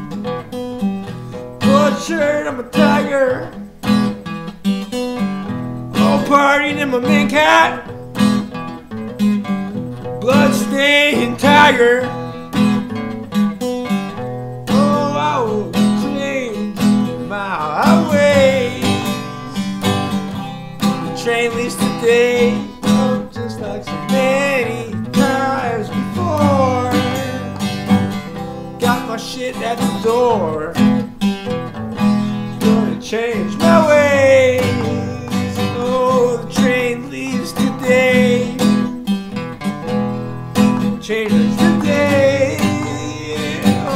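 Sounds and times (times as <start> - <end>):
acoustic guitar strumming: 0.0 - 43.9
man singing: 1.6 - 3.7, 5.9 - 8.0, 10.2 - 12.7, 14.6 - 31.1, 32.0 - 38.9, 40.6 - 43.9.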